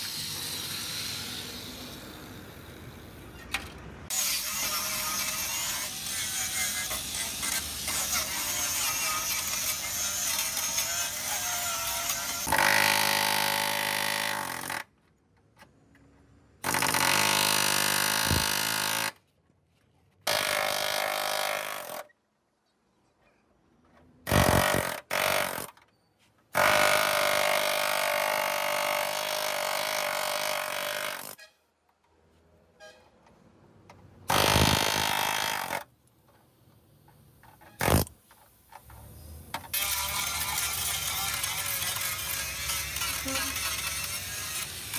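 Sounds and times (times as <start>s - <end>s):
pneumatic air hammer on steel: 16.6s - 19.2s, 24.2s - 25.8s, 34.3s - 35.9s, 37.7s - 38.1s.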